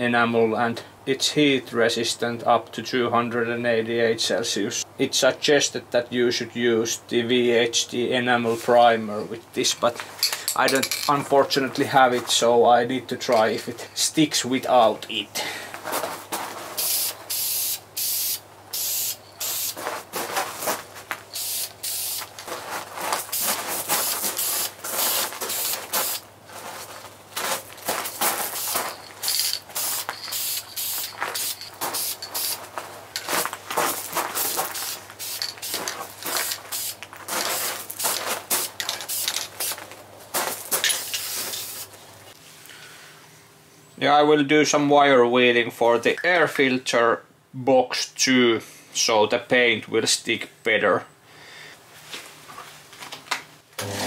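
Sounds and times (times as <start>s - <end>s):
aerosol can spraying hiss: 16.8s - 19.8s, 21.3s - 22.4s, 23.2s - 26.2s, 28.4s - 32.6s, 33.9s - 39.8s, 40.8s - 41.9s.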